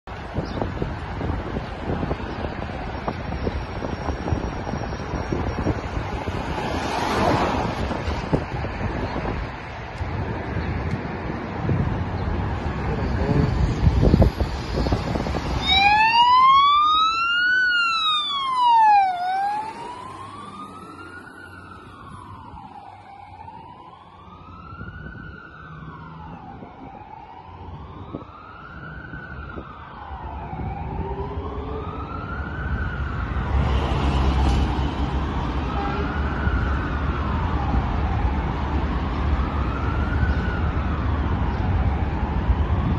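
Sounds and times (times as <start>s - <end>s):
fire engine siren wailing: 1.2s - 9.4s, 12.3s - 42.9s.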